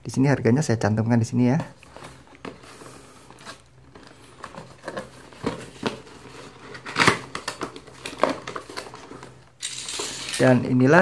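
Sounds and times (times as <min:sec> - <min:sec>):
cardboard box being handled: 0:01.6 - 0:09.4.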